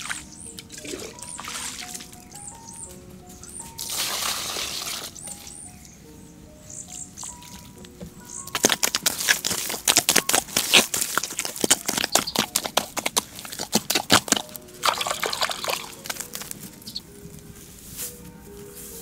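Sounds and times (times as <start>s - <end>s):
bare feet squelching in mud: 0.0s - 2.3s, 3.3s - 5.5s, 8.4s - 17.0s.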